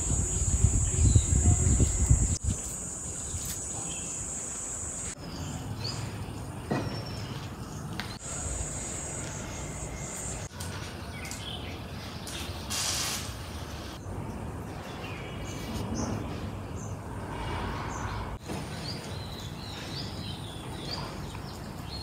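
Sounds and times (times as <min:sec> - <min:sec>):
small birds chirping: 0:00.0 - 0:12.4
short loud hiss: 0:12.7 - 0:13.4.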